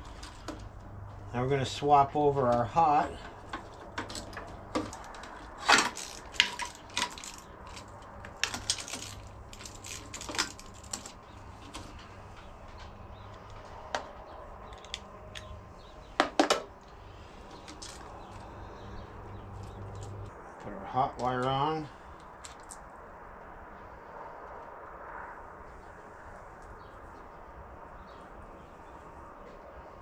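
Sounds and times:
small metal clicks and clinks: 3.2 - 12.9.

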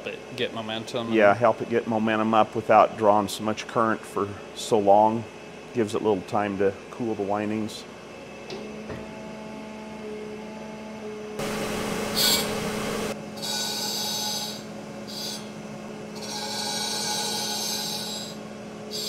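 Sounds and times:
grinding wheel motor hum: 9.0 - 19.0
high hissing rasp: 12.1 - 12.7, 13.4 - 15.6, 16.2 - 19.0.

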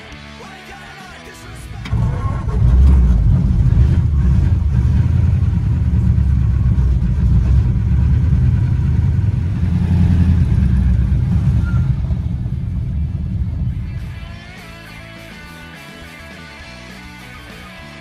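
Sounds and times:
car engine low rumble: 1.4 - 15.3.

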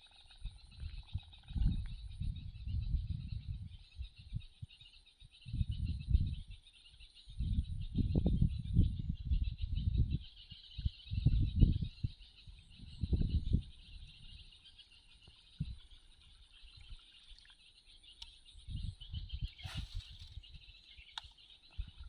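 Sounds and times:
insects and birds chirring: 0.0 - 22.0
faint click: 18.2 - 18.4.

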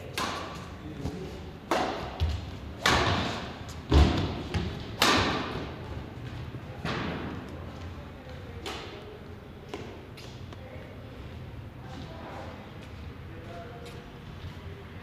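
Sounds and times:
racket striking shuttlecock: 1.6 - 5.6.

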